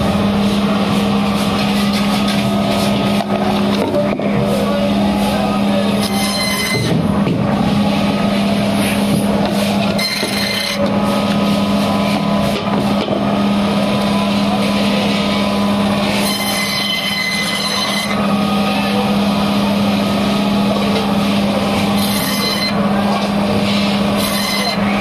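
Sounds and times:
band saw humming: 0:00.0 - 0:25.0
high blade whine: 0:04.6 - 0:07.2, 0:07.8 - 0:12.6, 0:13.4 - 0:25.0
saw blade rasping through fish: 0:06.0 - 0:06.9, 0:22.0 - 0:22.8, 0:24.2 - 0:25.0.

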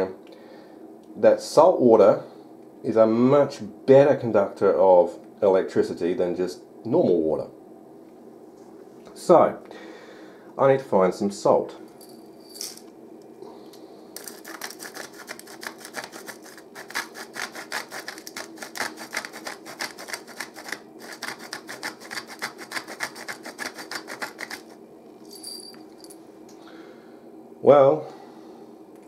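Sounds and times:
salt shaker rattling: 0:14.2 - 0:24.7.

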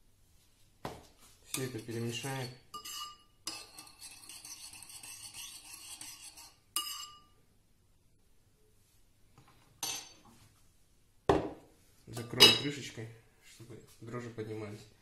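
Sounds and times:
teaspoon scraping and clinking bowl: 0:01.5 - 0:07.4
bowl rubbing on counter: 0:01.9 - 0:06.6.

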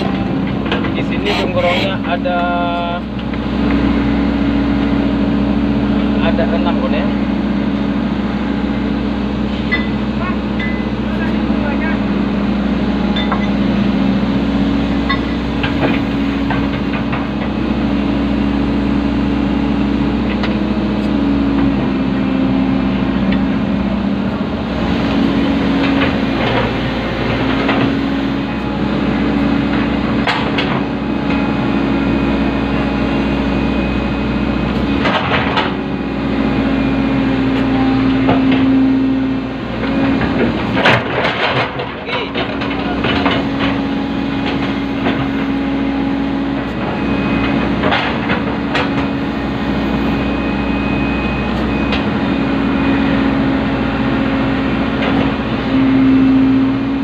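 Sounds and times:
diesel engine running: 0:00.0 - 0:57.0
knocks and clanks: 0:40.1 - 0:43.8, 0:47.6 - 0:49.1.

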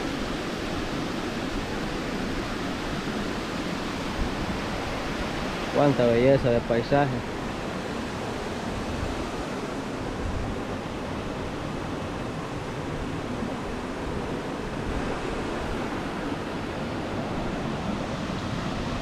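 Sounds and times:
waterfall and stream rushing: 0:00.0 - 0:19.0
wind buffeting microphone: 0:07.2 - 0:19.0.

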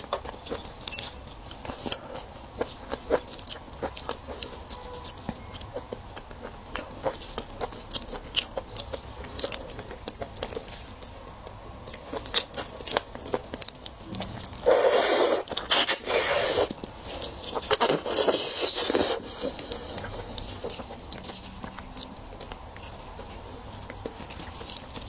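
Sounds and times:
loud wet sucking: 0:14.6 - 0:16.7.

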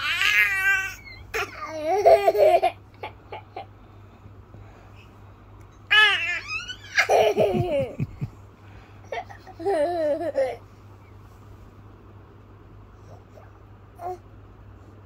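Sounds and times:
children laughing: 0:06.4 - 0:08.4.

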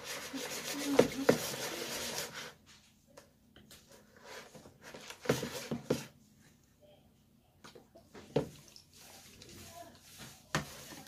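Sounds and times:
utensil stirring wet slime: 0:00.0 - 0:02.6, 0:07.7 - 0:11.0.

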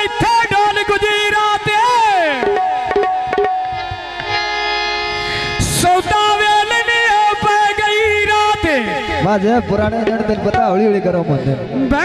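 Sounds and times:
man singing with echo: 0:00.0 - 0:04.1, 0:05.6 - 0:12.0
steady sustained tones: 0:02.6 - 0:07.4.

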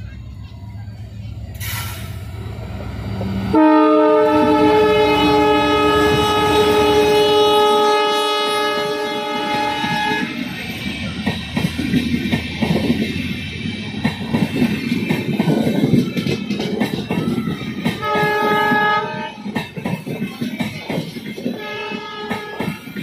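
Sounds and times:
locomotive horn blast: 0:03.5 - 0:10.5, 0:18.0 - 0:19.4, 0:21.5 - 0:22.8
train wheels clacking over joints: 0:09.3 - 0:23.0.

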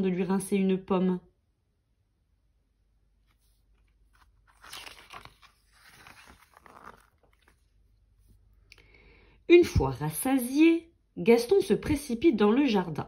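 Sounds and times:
paper page rustling: 0:03.2 - 0:08.4.

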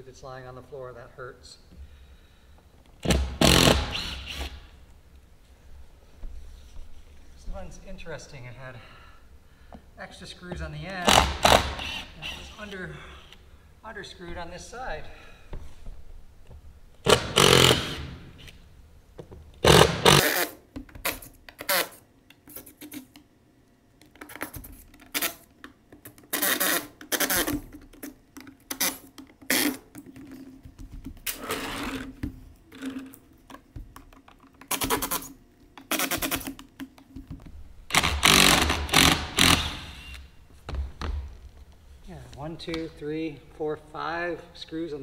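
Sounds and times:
cordless drill motor bursts: 0:03.0 - 0:04.6, 0:11.1 - 0:12.1, 0:17.1 - 0:18.4, 0:19.6 - 0:20.4, 0:37.9 - 0:40.2.

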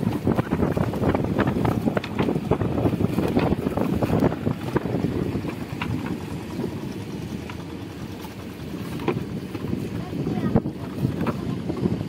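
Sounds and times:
fishing net rustling and tapping: 0:00.0 - 0:10.0
wind buffeting microphone: 0:00.0 - 0:12.0.

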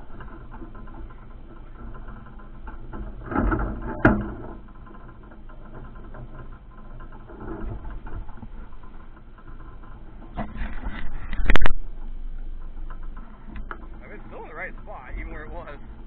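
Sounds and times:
water rush: 0:14.0 - 0:16.0.

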